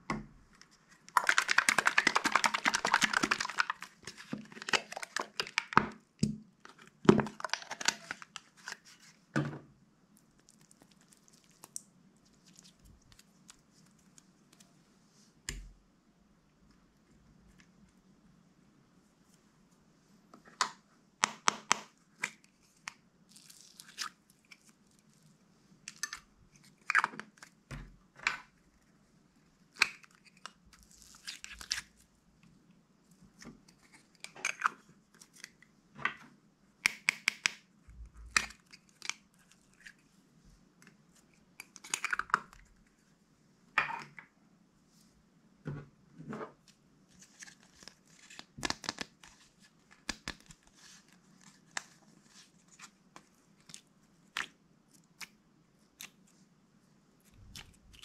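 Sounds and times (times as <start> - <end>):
plastic containers clicking and rustling: 1.1 - 6.0.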